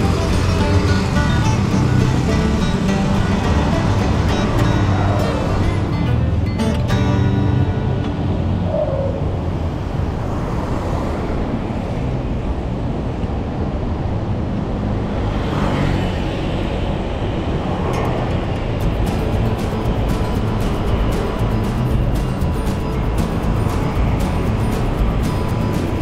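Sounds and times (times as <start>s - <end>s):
road traffic rumble: 0.0s - 26.0s
vehicle passing: 0.0s - 26.0s.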